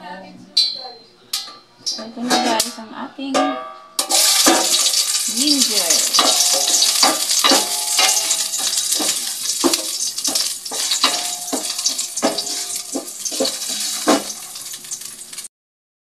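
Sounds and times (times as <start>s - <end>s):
metallic ring: 3.4s - 4.7s, 10.3s - 15.0s
wooden spatula knocking on pot: 3.4s - 14.9s
ginger sizzling in hot oil: 4.0s - 15.5s.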